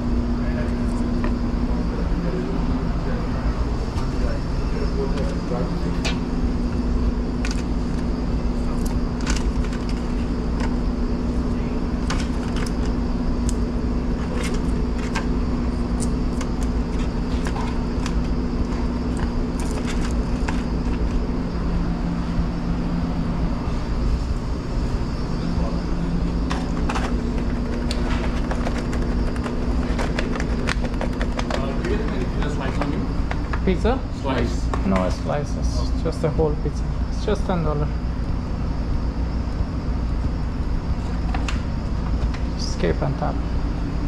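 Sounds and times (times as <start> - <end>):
kitchen equipment humming: 0.0 - 44.0.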